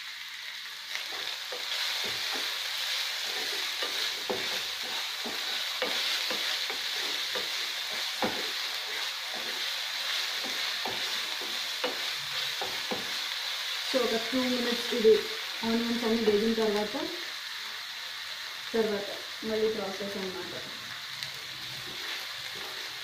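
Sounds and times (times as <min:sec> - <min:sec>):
onions sizzling in oil: 0:00.0 - 0:23.0
wooden spatula scraping pan: 0:01.0 - 0:13.2, 0:21.8 - 0:23.0.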